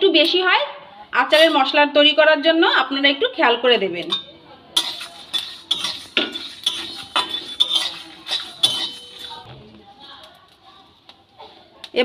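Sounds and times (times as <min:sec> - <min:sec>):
spatula scraping metal pan: 0:01.4 - 0:01.7, 0:04.8 - 0:09.5.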